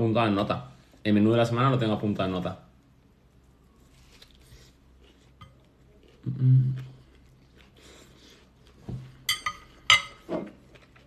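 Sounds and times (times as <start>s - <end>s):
cutlery clinking on ceramic plate: 9.3s - 10.4s.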